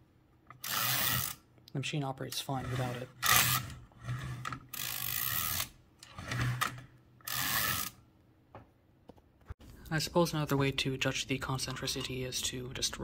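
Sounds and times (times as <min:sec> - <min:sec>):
typewriter mechanism ratcheting: 0:00.6 - 0:01.4, 0:04.7 - 0:05.7, 0:06.3 - 0:08.0.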